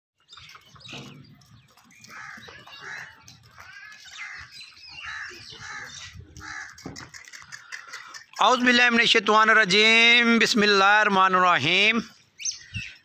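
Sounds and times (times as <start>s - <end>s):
crows cawing: 2.0s - 8.2s.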